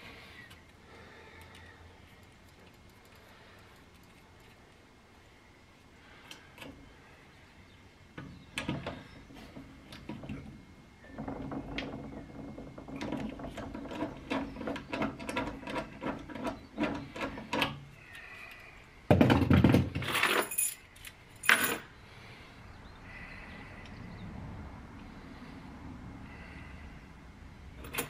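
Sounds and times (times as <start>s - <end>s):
metal parts clicking and clinking: 20.0s - 21.9s, 27.8s - 28.0s.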